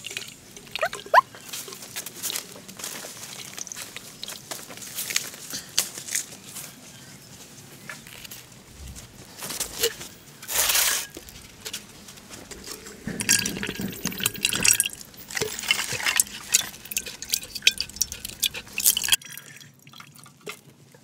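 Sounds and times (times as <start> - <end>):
liquid splashing and dripping: 13.3 - 20.5.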